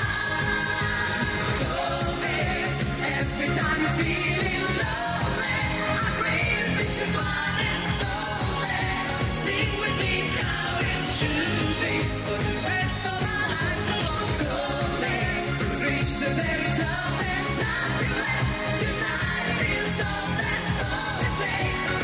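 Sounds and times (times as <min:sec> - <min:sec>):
pop backing track with beat: 0:00.0 - 0:22.0
women singing pop song: 0:00.0 - 0:22.0.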